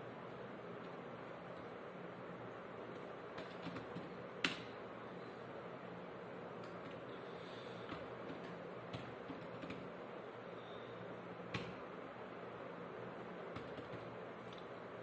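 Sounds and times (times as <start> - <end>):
low room hum and hiss: 0.0 - 15.0
computer keyboard key presses: 3.4 - 4.7, 7.9 - 9.9, 11.5 - 11.8, 13.5 - 14.1.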